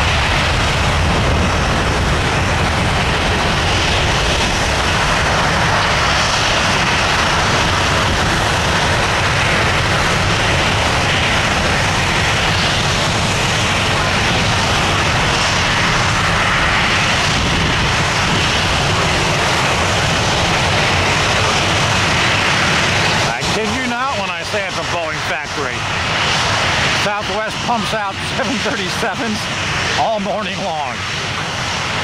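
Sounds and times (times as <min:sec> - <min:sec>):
jet engines roaring: 0:00.0 - 0:32.0.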